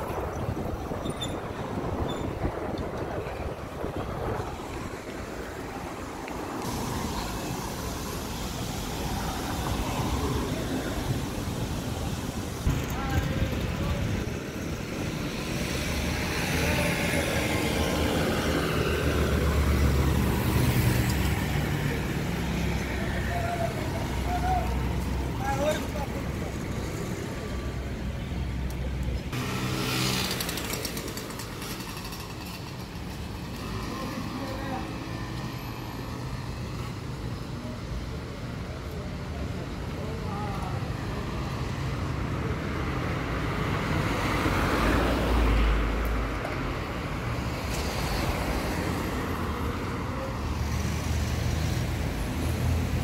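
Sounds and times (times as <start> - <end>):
street traffic rumble: 0.0 - 53.0.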